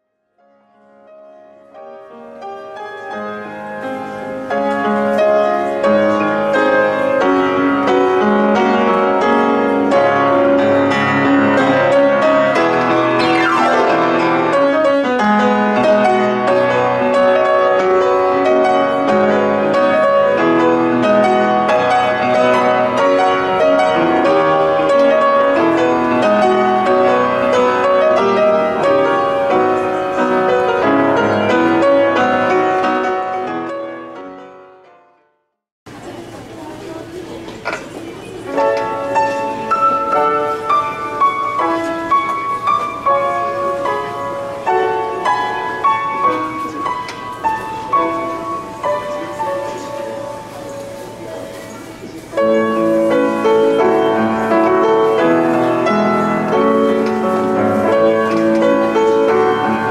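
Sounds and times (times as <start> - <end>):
piano music with quick notes: 0.2 - 59.9
falling pitch sweep: 13.2 - 14.9.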